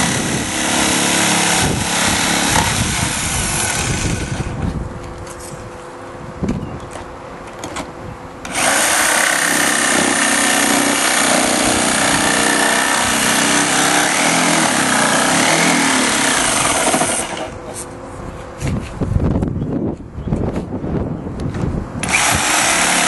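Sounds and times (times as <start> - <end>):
jigsaw cutting plastic: 8.5 - 17.5, 22.0 - 23.0.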